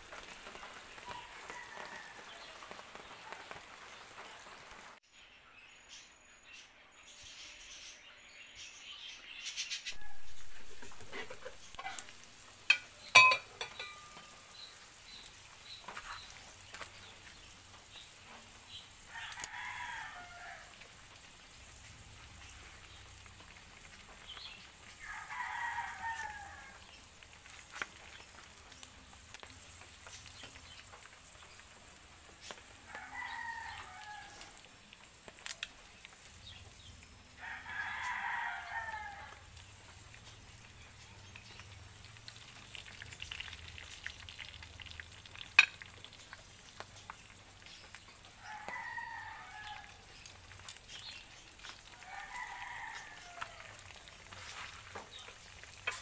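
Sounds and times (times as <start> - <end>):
food sizzling: 0.0 - 5.0, 9.5 - 56.0
rooster crowing: 1.0 - 3.5, 9.9 - 12.2, 19.1 - 20.8, 25.0 - 26.8, 32.8 - 34.7, 37.4 - 39.5, 48.4 - 50.1, 51.9 - 54.7.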